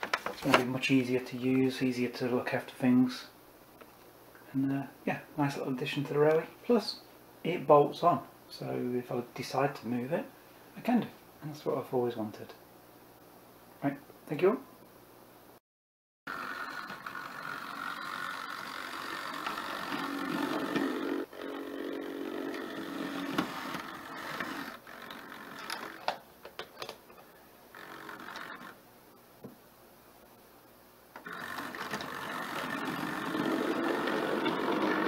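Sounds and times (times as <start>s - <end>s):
model train motor and wheels whirring: 16.3s - 26.2s, 27.7s - 28.8s, 31.2s - 35.0s.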